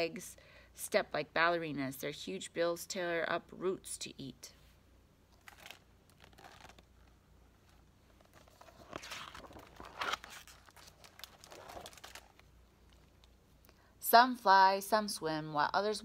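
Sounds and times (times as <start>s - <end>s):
paper page turning: 5.4s - 13.3s.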